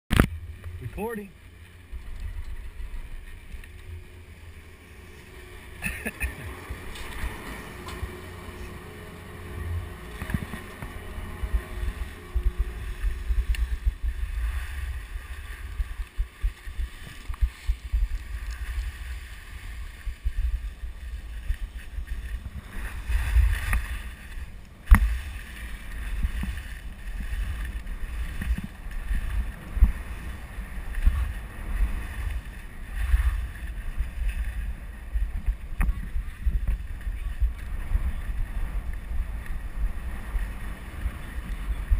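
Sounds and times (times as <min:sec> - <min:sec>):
wind buffeting microphone: 0:00.1 - 0:41.9
skis hissing over snow: 0:12.8 - 0:41.9.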